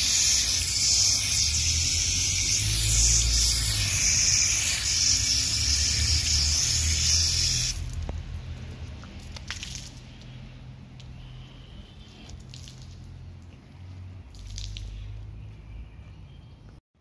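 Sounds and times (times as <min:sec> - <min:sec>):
hose water spraying: 0:00.0 - 0:08.0
water drips and splashes: 0:07.7 - 0:11.2, 0:12.1 - 0:15.4.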